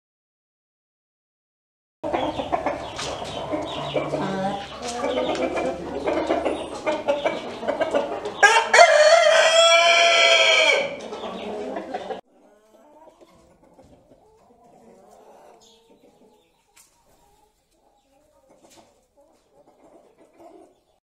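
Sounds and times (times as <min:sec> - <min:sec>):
hens clucking: 0:02.0 - 0:21.0
rooster crowing: 0:08.4 - 0:11.0.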